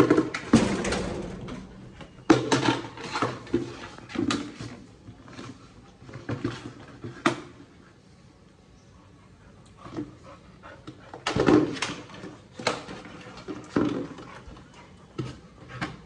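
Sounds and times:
plastic bucket clattering on tiles: 0:11.2 - 0:14.4.

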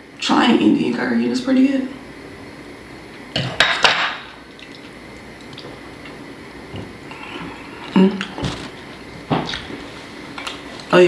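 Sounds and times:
chewing and lip smacks: 0:04.5 - 0:06.2
person humming: 0:07.1 - 0:08.7.

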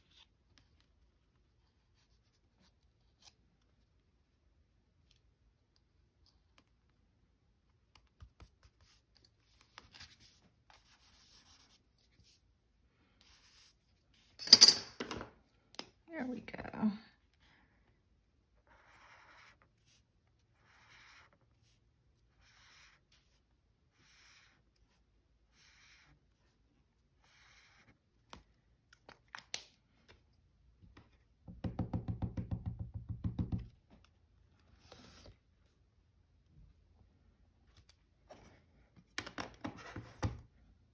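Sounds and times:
pen scratching on paper: 0:08.1 - 0:12.4, 0:18.6 - 0:26.6, 0:27.2 - 0:28.0.

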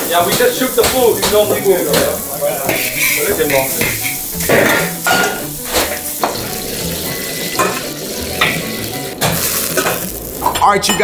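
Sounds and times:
food sizzling in a wok: 0:00.0 - 0:11.0
metal ladle scraping a wok: 0:01.9 - 0:10.6.

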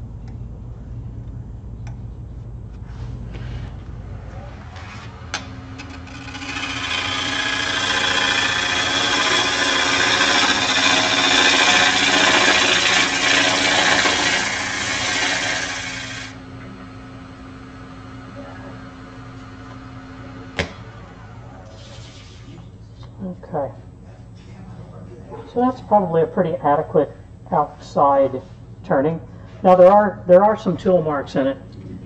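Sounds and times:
lathe humming: 0:04.2 - 0:23.0
turning tool shaving wood: 0:05.8 - 0:16.4.

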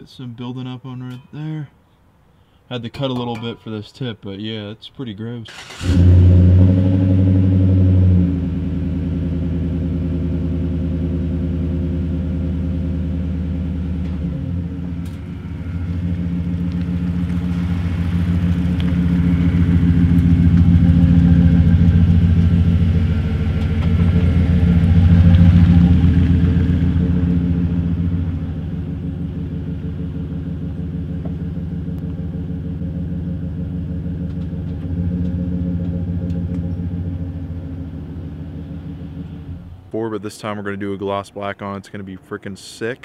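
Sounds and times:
truck engine idling: 0:08.4 - 0:41.6.

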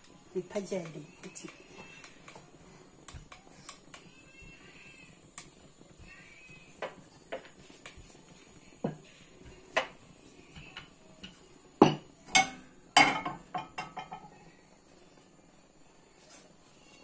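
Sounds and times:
kitchenware clattering: 0:11.8 - 0:14.4.

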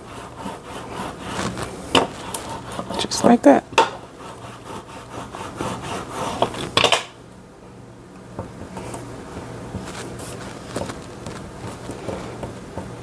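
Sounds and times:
brayer rolling over sticker sheet: 0:00.0 - 0:03.4, 0:09.7 - 0:12.5.

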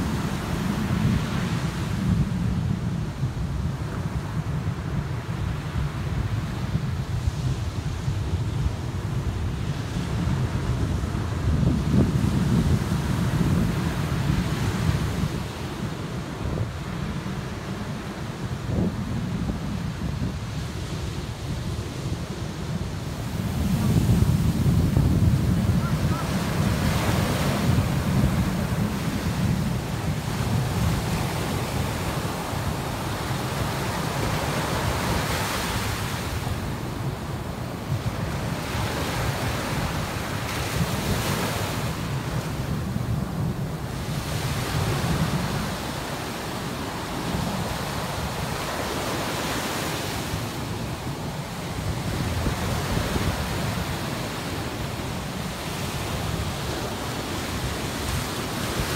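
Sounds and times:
wind buffeting microphone: 0:00.0 - 0:58.9
ocean surf breaking: 0:13.0 - 0:58.9.

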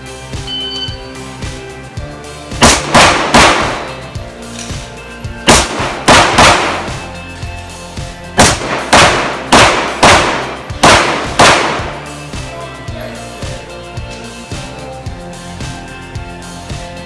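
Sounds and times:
background music: 0:00.0 - 0:17.0
pistol shots: 0:02.6 - 0:04.1, 0:05.4 - 0:07.2, 0:08.4 - 0:12.2.

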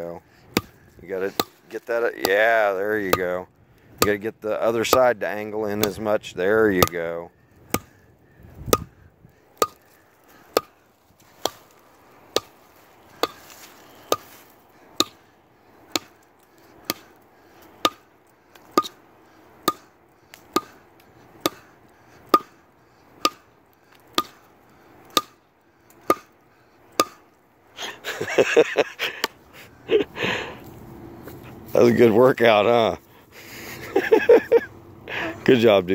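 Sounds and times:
axe chopping into log: 0:00.5 - 0:01.6, 0:07.7 - 0:07.9, 0:10.5 - 0:10.7, 0:13.2 - 0:14.4, 0:15.9 - 0:16.2, 0:16.8 - 0:17.1, 0:17.8 - 0:18.0, 0:20.5 - 0:20.8, 0:21.4 - 0:21.7, 0:22.3 - 0:22.6, 0:25.1 - 0:25.4
person's voice: 0:31.7 - 0:33.0.

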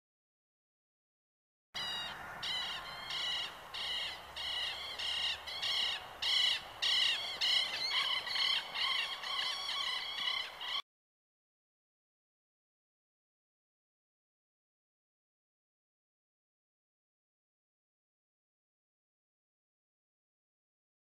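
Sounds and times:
chorus of harsh animal calls: 0:01.8 - 0:10.8.

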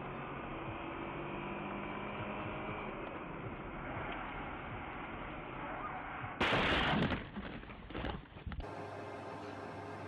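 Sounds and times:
road and engine noise inside car: 0:00.0 - 0:06.4.

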